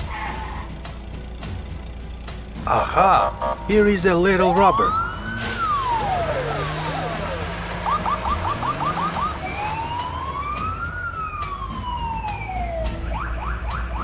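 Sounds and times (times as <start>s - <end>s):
low engine hum: 0.0s - 14.0s
police siren wailing and yelping: 2.8s - 14.0s.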